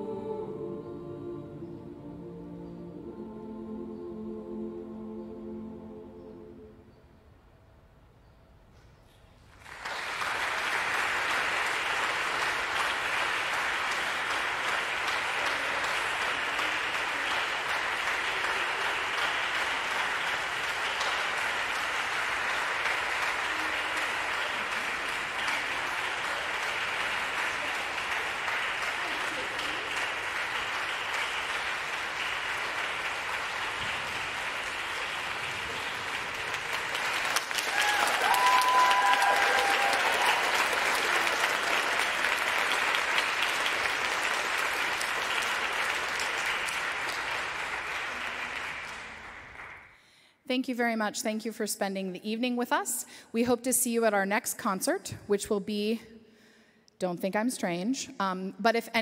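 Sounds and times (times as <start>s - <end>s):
audience applauding: 9.5s - 50.0s.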